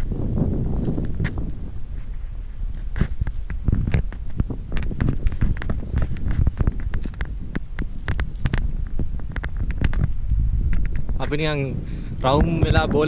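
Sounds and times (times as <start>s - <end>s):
wind buffeting microphone: 0.0s - 13.0s
footsteps in grass: 0.2s - 11.3s.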